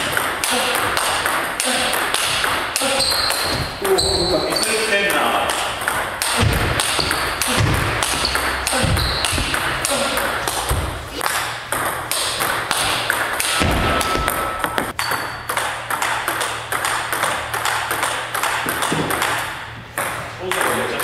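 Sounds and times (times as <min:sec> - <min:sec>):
table tennis ball hitting bats: 0:00.0 - 0:21.0
ball bouncing on table: 0:05.5 - 0:20.8.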